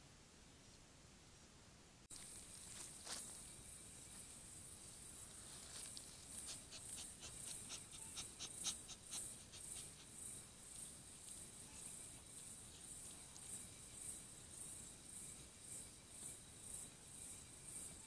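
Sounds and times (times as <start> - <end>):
insect chirr: 2.1 - 18.0
anteater sniffing and snuffling: 5.4 - 11.5.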